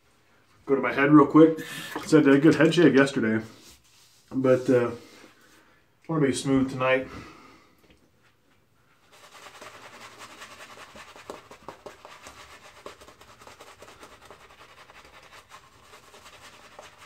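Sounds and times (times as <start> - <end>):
shaving brush swishing on skin: 9.0 - 17.0.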